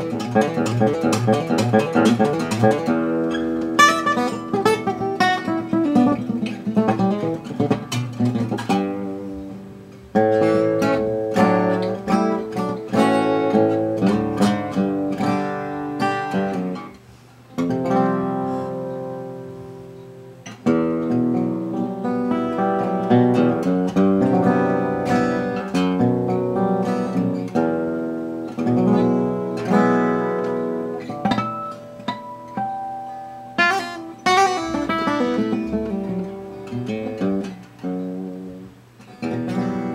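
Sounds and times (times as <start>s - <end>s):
fingerpicked acoustic guitar: 0.0s - 39.9s.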